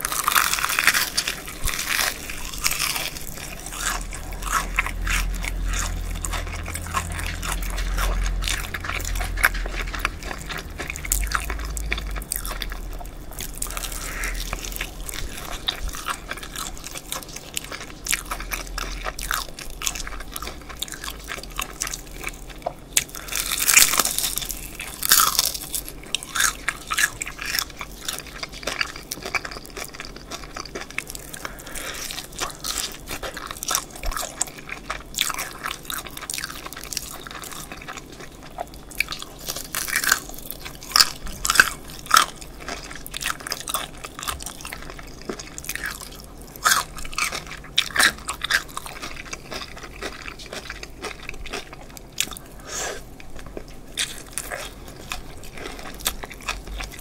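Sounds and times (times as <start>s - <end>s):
chewing: 0.0s - 57.0s
crunching fried chicken: 0.0s - 57.0s.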